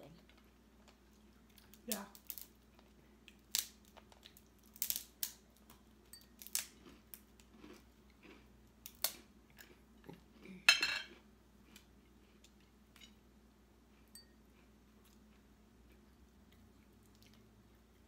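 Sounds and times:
crab legs cracking: 1.6s - 2.5s, 3.4s - 5.4s.

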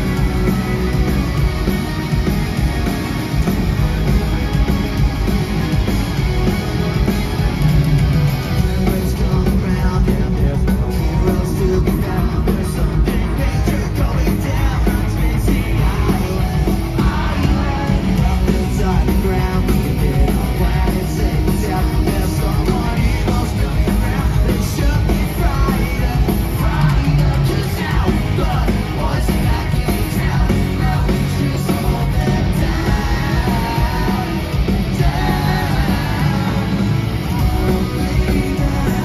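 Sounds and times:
electric guitars: 0.0s - 39.0s
pop-punk band playing live: 0.0s - 39.0s
person singing: 8.6s - 39.0s.

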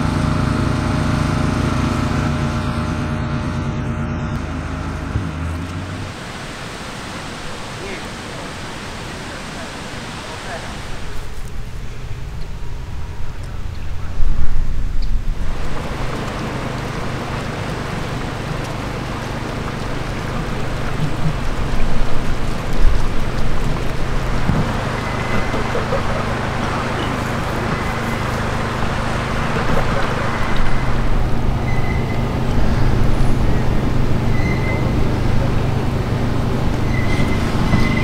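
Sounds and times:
rail carriage rolling on track: 7.7s - 38.0s.

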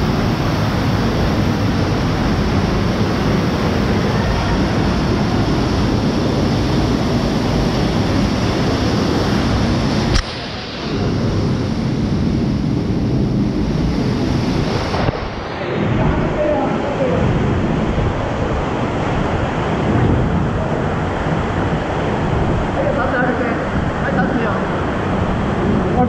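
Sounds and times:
waterfall rushing: 0.0s - 26.0s
sharp click: 10.1s - 10.5s.

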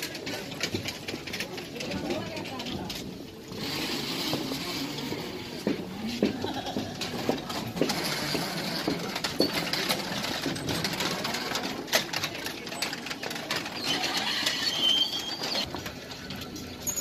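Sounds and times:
metal prayer wheels rattling: 6.4s - 17.0s.

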